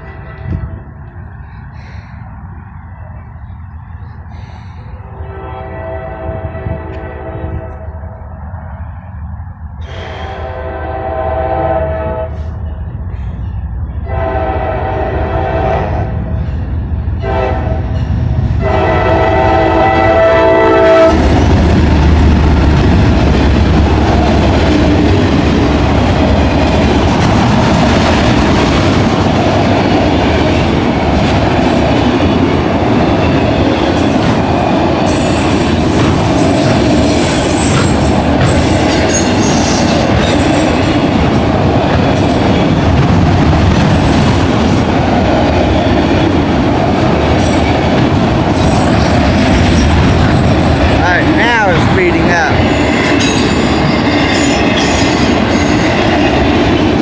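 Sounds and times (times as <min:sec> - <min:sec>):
train horn blasts: 0:00.0 - 0:00.8, 0:05.1 - 0:08.1, 0:09.8 - 0:12.6, 0:14.0 - 0:16.3, 0:17.2 - 0:21.4
train rumbling and clattering past: 0:00.0 - 0:57.0.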